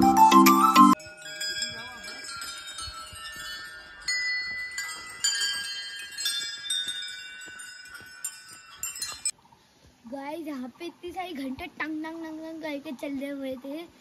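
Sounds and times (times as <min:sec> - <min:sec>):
small brass bells ringing: 0:00.0 - 0:09.4.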